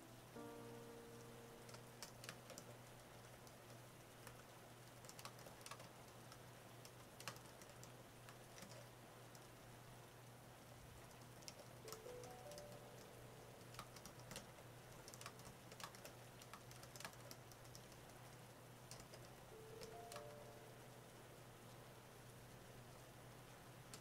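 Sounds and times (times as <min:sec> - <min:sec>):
soft steady hiss: 0:00.0 - 0:24.0
typing key clicks: 0:11.1 - 0:14.4, 0:18.9 - 0:20.4.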